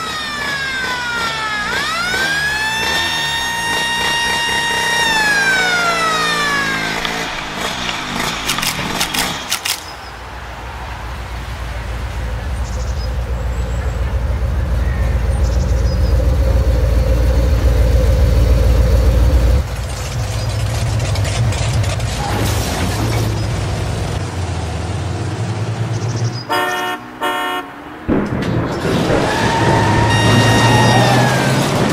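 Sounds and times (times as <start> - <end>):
engine running: 0.0 - 9.9, 10.6 - 31.9
deep truck engine rumble: 0.0 - 31.9
sharp clicks: 6.8 - 10.1.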